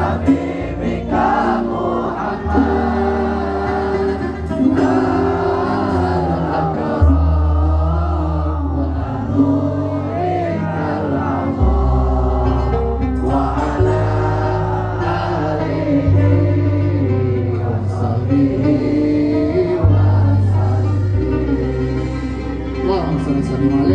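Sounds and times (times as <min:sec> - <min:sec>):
band accompaniment: 0:00.0 - 0:08.1
deep held bass notes: 0:00.0 - 0:23.9.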